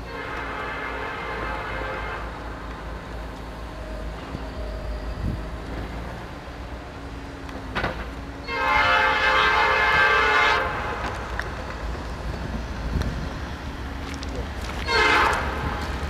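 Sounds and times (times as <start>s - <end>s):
locomotive air horn blast: 0.0s - 2.4s, 8.4s - 11.0s, 14.8s - 15.9s
train rumbling: 0.0s - 16.0s.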